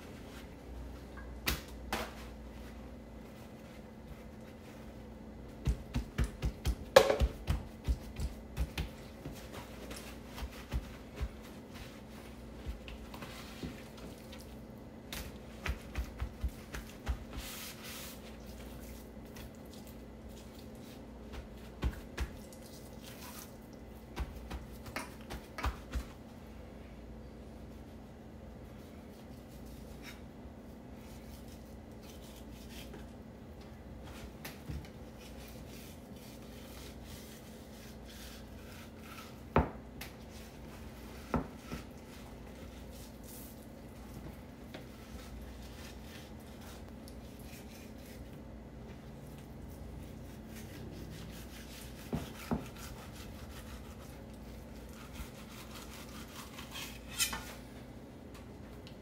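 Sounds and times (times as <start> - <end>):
knife scraping on cutting board: 54.8 - 57.7.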